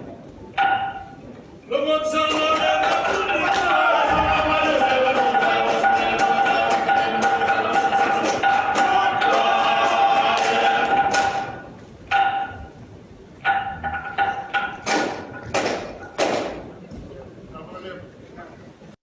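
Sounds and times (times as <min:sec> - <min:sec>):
group singing held notes: 0:01.8 - 0:12.8
steady drum beat: 0:02.3 - 0:11.8.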